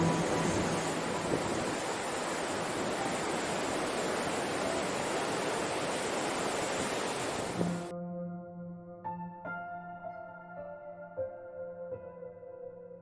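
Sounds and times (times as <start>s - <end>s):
music: 0.0s - 1.5s, 7.6s - 13.0s.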